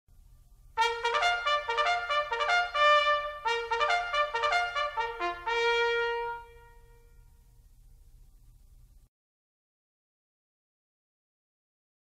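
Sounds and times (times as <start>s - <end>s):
brass fanfare jingle: 0.8s - 7.4s.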